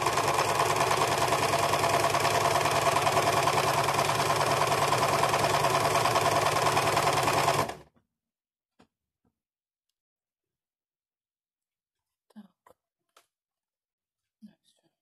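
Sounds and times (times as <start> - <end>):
sewing machine rattling: 0.0 - 7.9.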